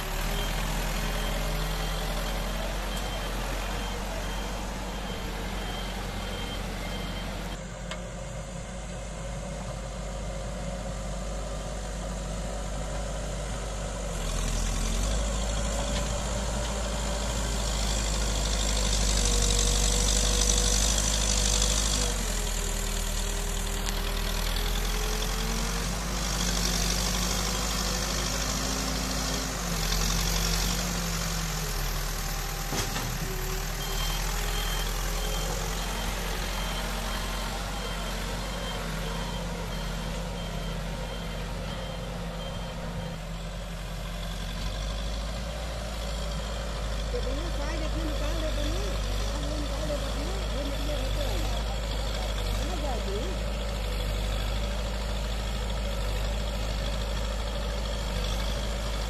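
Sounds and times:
reversing alarm beeping: 0.0s - 7.6s, 14.2s - 43.5s
backhoe diesel engine revving: 0.0s - 59.0s.

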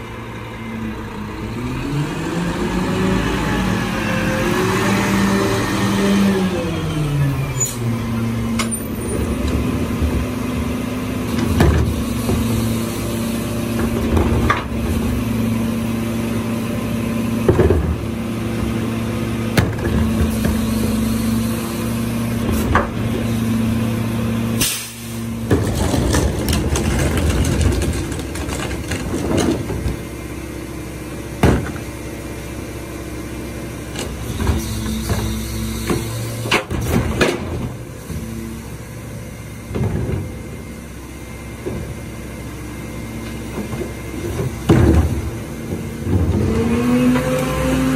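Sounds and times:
knocks and clanks: 25.4s - 30.0s, 31.4s - 31.9s, 43.5s - 47.3s.

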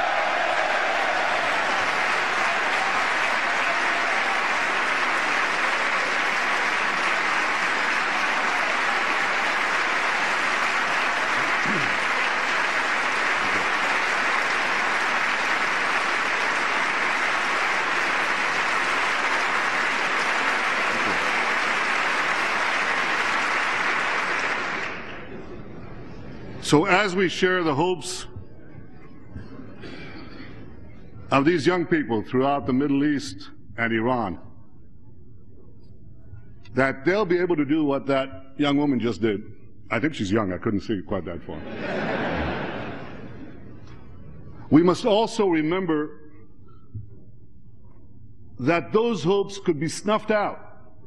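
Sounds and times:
large audience applauding: 0.0s - 25.3s.

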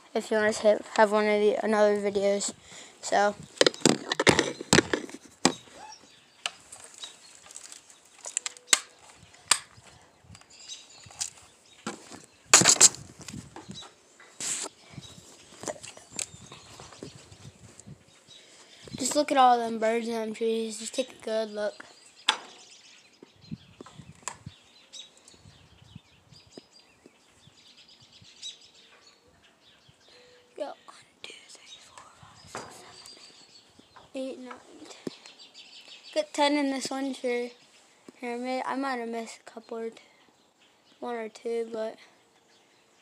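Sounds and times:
faint bird chirps: 5.5s - 12.5s, 21.7s - 36.4s.

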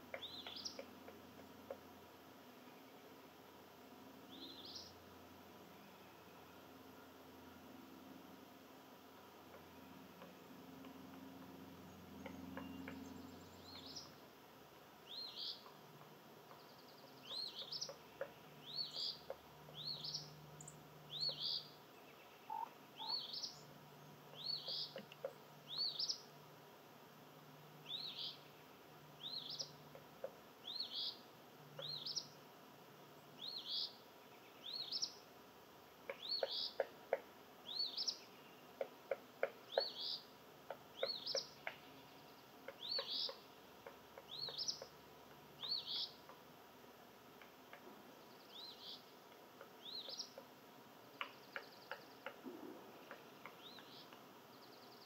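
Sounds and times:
bird chirping: 0.1s - 1.8s, 4.3s - 5.0s, 9.5s - 14.3s, 15.0s - 26.3s, 27.6s - 32.4s, 33.3s - 35.2s, 36.1s - 36.9s, 37.6s - 46.4s, 47.7s - 55.0s.

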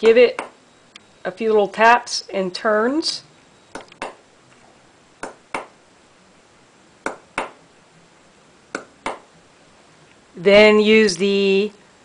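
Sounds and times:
hammer tapping metal tool: 0.0s - 0.6s, 3.7s - 4.2s, 5.2s - 5.8s, 7.0s - 7.6s, 8.7s - 9.3s.

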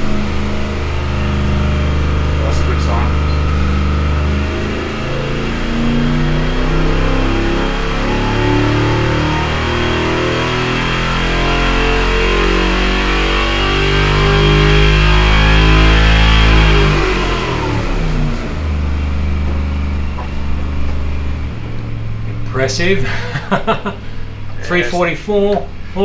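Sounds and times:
engine revving at full throttle: 0.0s - 26.0s.

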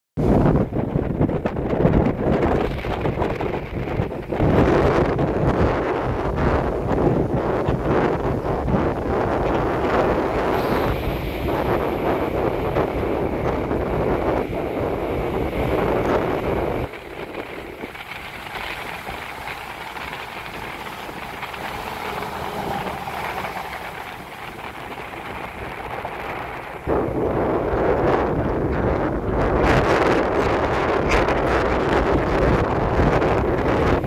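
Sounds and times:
wind buffeting microphone: 0.2s - 34.0s
surf breaking on pebbly shore: 1.9s - 34.0s.

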